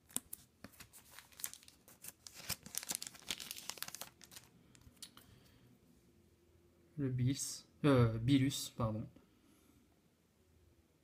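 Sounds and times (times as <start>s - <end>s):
plastic sleeves crinkling: 0.0s - 5.2s.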